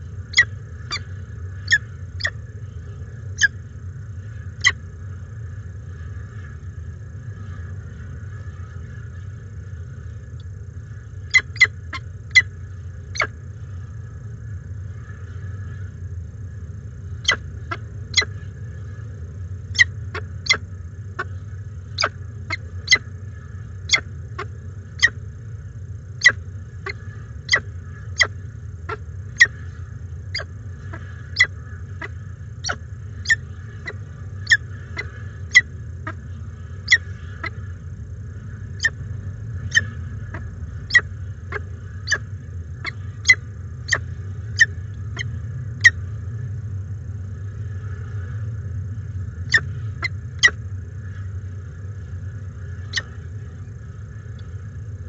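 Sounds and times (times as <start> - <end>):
low hum: 0.0 - 55.0
falcon chick begging chirps: 0.3 - 1.0, 1.7 - 2.3, 11.3 - 11.7, 17.2 - 18.3, 19.8 - 20.6, 22.0 - 23.0, 23.9 - 25.2, 26.2 - 27.6, 31.4 - 35.7, 36.9 - 37.6, 39.7 - 42.2, 49.5 - 50.6.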